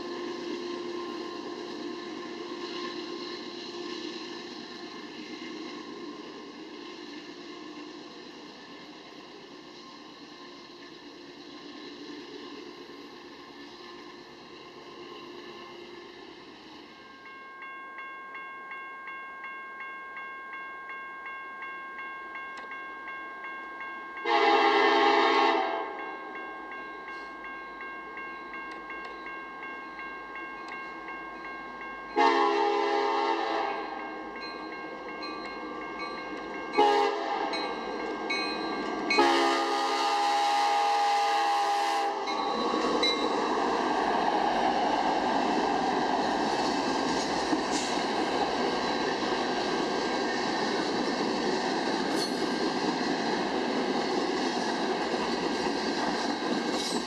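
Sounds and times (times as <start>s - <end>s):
crossing bell ringing: 0.0s - 10.1s, 13.8s - 55.6s
train passing: 0.0s - 57.0s
locomotive air horn: 24.2s - 26.0s, 32.2s - 34.0s, 36.8s - 37.6s, 39.1s - 42.3s.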